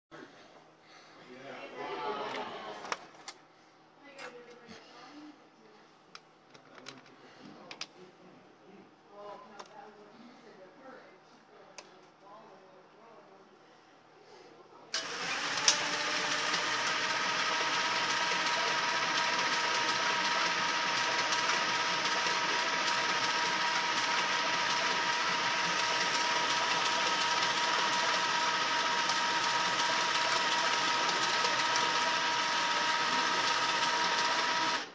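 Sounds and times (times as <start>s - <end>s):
motors whirring with high whine: 15.0s - 34.9s.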